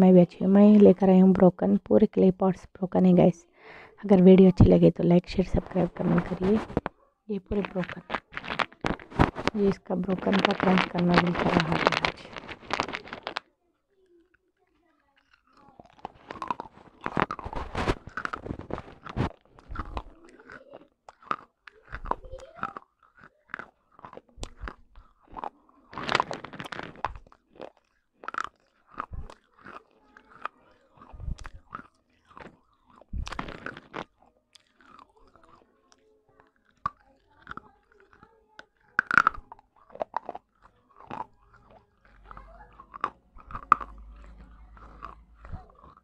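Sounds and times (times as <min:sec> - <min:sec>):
crunching of chewed clay pieces: 0:03.3 - 0:46.0.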